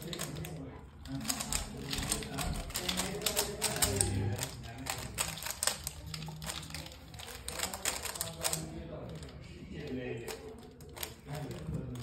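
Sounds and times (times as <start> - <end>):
plastic puzzle cube clicking: 0.0 - 12.0.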